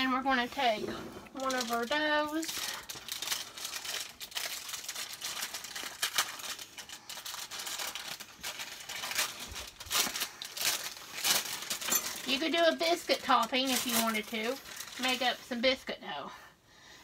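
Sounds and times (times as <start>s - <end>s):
plastic wrapper crinkling: 0.0s - 15.8s.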